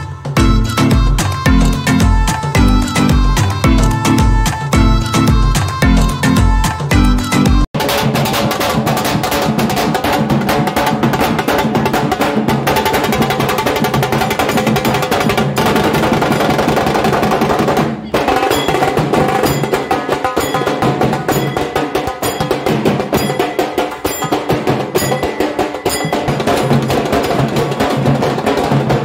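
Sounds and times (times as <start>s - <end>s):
dhol drums fast rhythm: 0.0s - 29.0s.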